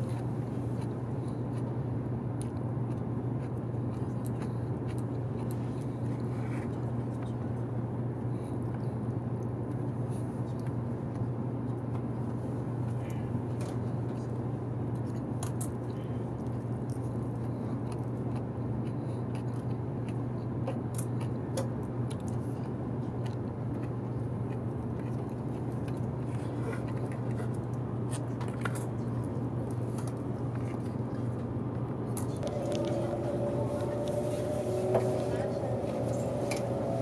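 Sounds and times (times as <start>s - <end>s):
train interior running noise: 28.6s - 37.0s
steady tones: 32.4s - 37.0s.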